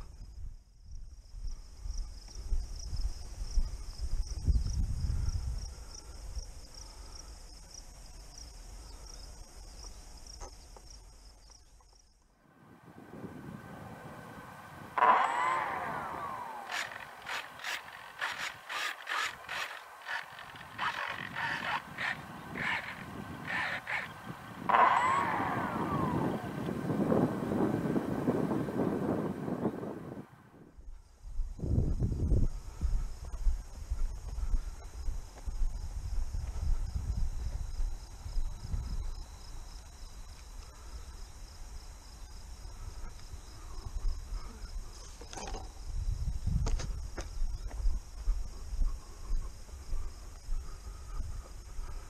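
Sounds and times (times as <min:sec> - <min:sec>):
wind rumble on microphone: 0:00.0 - 0:11.2, 0:12.6 - 0:16.9, 0:20.5 - 0:52.0
crickets chirping: 0:00.0 - 0:29.7, 0:30.7 - 0:52.0
servos whirring: 0:14.3 - 0:30.1.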